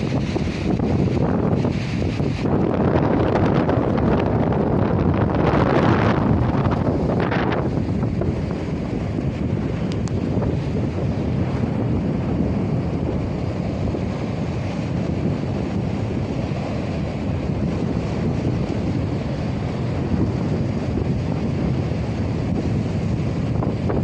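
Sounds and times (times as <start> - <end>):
strong wind buffeting microphone: 0.0 - 24.0.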